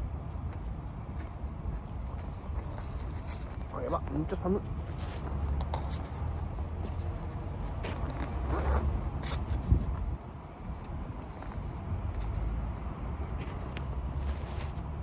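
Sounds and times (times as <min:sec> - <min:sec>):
clothing rustling: 0:04.9 - 0:10.0.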